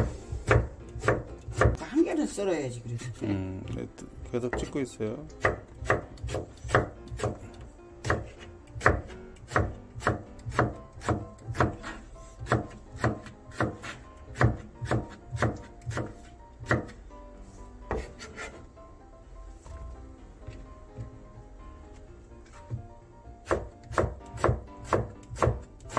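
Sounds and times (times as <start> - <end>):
knife slicing eggplant: 5.4 - 7.4, 8.0 - 17.0, 17.9 - 18.6, 23.4 - 25.9.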